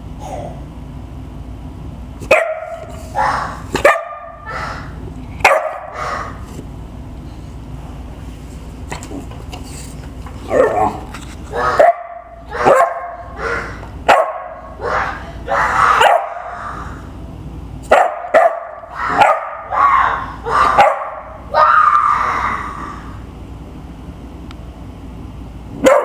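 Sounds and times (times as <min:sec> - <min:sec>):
puppy barking: 0:02.2 - 0:06.4, 0:10.5 - 0:16.6, 0:17.9 - 0:21.7, 0:25.8 - 0:26.0
child imitating barks: 0:14.6 - 0:16.8, 0:18.8 - 0:22.6.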